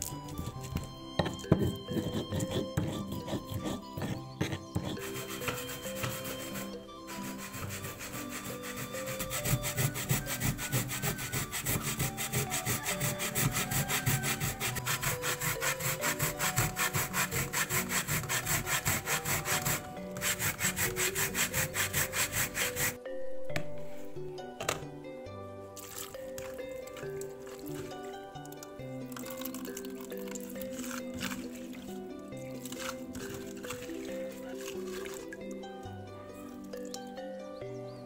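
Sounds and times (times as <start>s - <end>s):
pestle grinding in stone mortar: 0.0s - 23.0s, 25.8s - 35.5s
coconut grating on metal grater: 1.5s - 23.0s, 30.5s - 31.7s, 32.4s - 35.2s.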